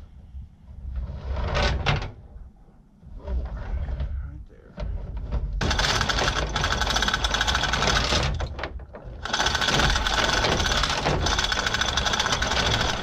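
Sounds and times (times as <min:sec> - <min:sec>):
chain hoist ratcheting: 0:05.6 - 0:08.6, 0:09.2 - 0:13.0.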